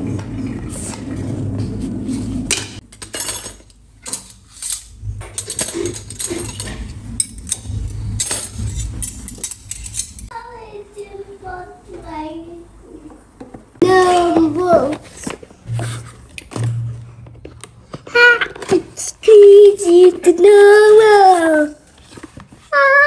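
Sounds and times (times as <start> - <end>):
metal spoons clinking: 2.9 - 10.3.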